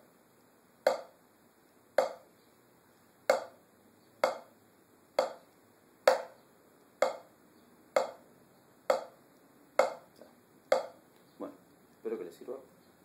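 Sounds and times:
drumstick taps on practice pad: 0.8 - 1.2, 2.0 - 2.3, 3.3 - 3.6, 4.2 - 4.5, 5.2 - 5.5, 6.1 - 6.4, 7.0 - 7.3, 8.0 - 8.2, 8.9 - 9.2, 9.8 - 10.1, 10.7 - 11.0.

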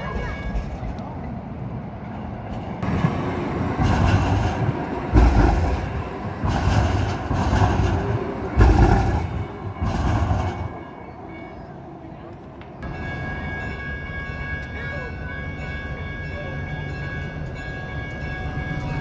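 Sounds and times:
train wheels rumbling on track: 0.0 - 19.0.

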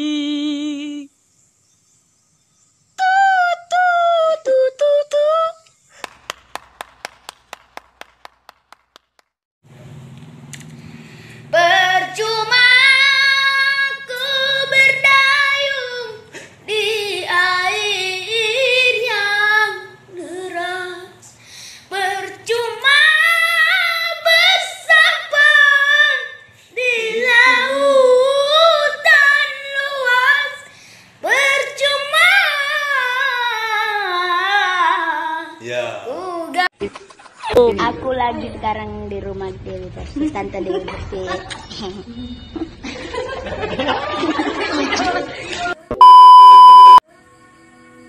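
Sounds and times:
boy singing ballad: 0.0 - 1.1, 11.5 - 21.3, 21.9 - 36.7
quick hand claps: 6.0 - 9.4.

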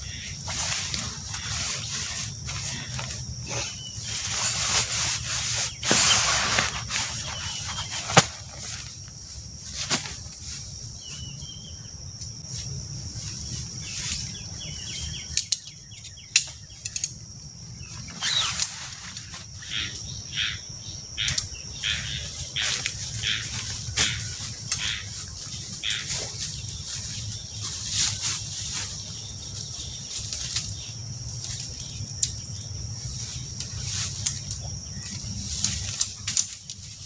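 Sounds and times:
insect trill: 0.0 - 37.0
footsteps on dry leaves: 0.4 - 11.4, 22.1 - 30.6
nylon fabric rustling: 4.0 - 8.9.

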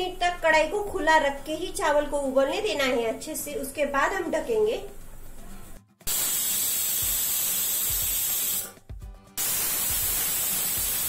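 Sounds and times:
pressure cooker whistling: 6.1 - 8.8, 9.4 - 11.0.

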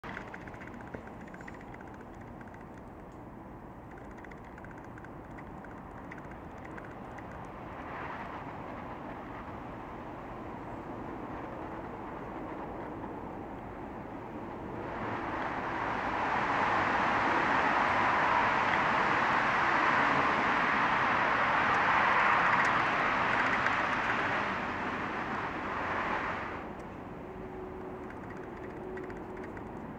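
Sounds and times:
faint rapid ticking: 0.0 - 7.6, 28.0 - 29.9
steady rushing noise: 0.0 - 29.9.

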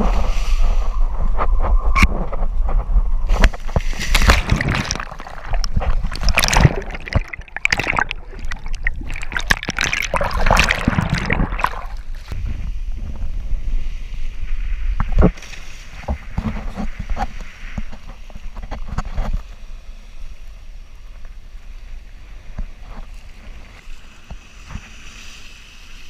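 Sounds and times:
water rushing and splashing: 3.3 - 12.4.

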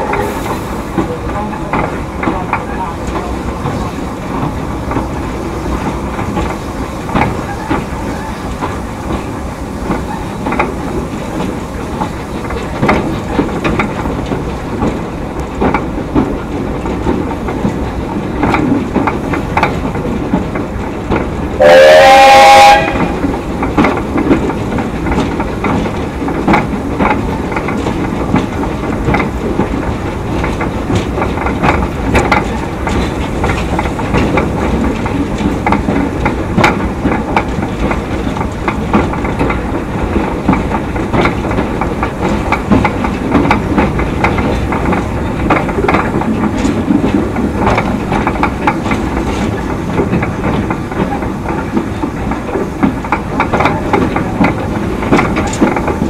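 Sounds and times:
train wheels clicking over rail joints: 0.0 - 56.0
steam whistle blast: 21.6 - 23.1.

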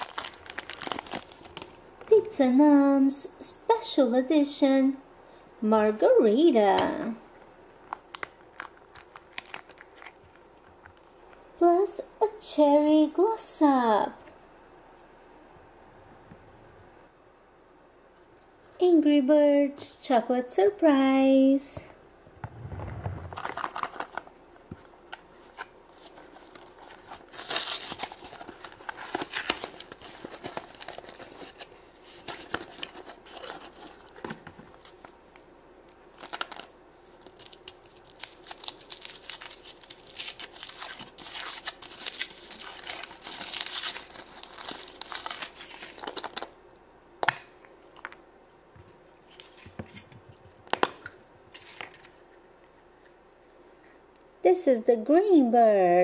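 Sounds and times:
foil wrapper crinkling: 0.0 - 2.1, 6.8 - 11.3, 23.3 - 46.6.

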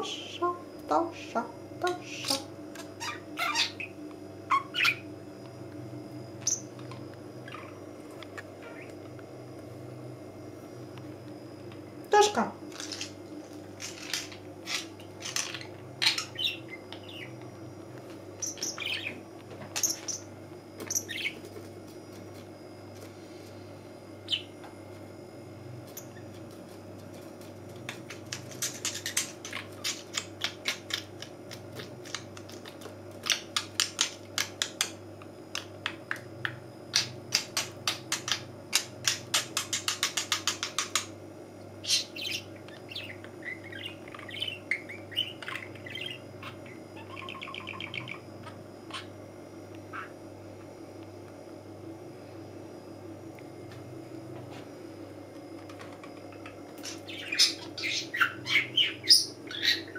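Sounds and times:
budgerigar chirping: 3.0 - 5.1, 14.6 - 17.4, 41.8 - 48.2, 56.9 - 59.9.

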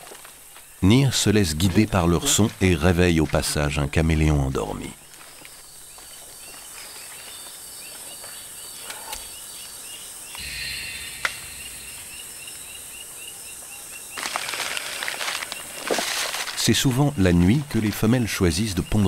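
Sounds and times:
frogs chirping: 5.8 - 16.0
leaf litter rustling: 14.2 - 16.6.

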